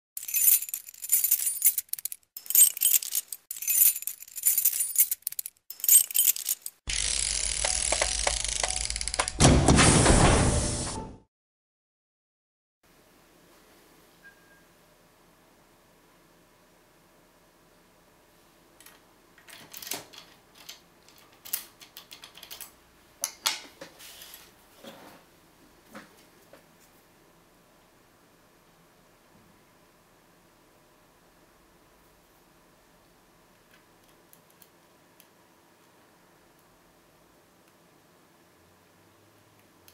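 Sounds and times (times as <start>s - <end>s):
metallic jingling: 0.2s - 9.0s
key clicking in a lock: 19.5s - 22.7s.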